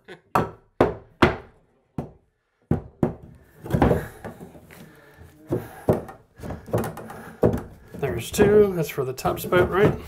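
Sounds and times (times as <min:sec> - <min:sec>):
hammer striking wood: 0:00.3 - 0:04.5, 0:05.5 - 0:08.7.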